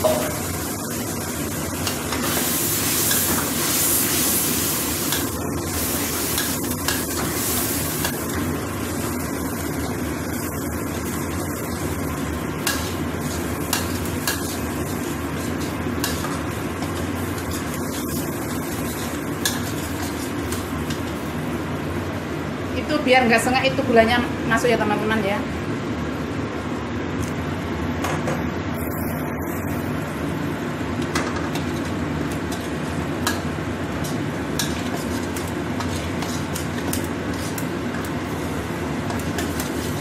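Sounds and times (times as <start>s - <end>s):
spice paste sizzling in a wok: 0.0s - 22.4s, 31.6s - 40.0s
metal spatula scraping a wok: 34.0s - 37.6s.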